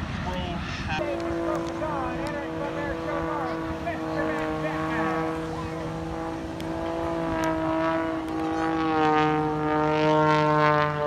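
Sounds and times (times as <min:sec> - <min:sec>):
propeller plane droning: 0:00.0 - 0:11.0.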